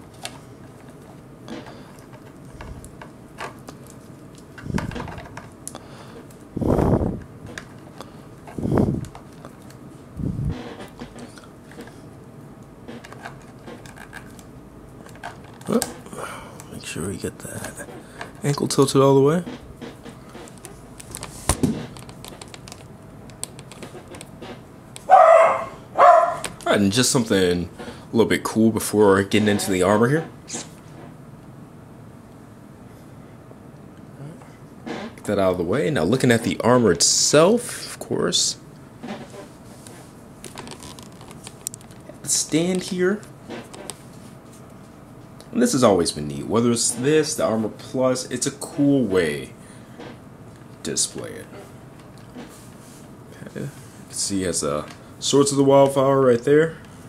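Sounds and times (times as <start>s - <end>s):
dog barking: 25.1s - 26.5s.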